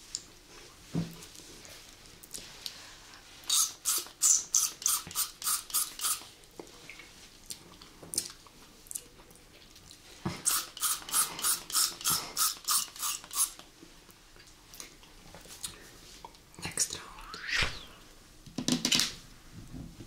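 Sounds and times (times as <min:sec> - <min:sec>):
candy pump spray squirts: 0:03.4 - 0:06.3, 0:10.4 - 0:13.6.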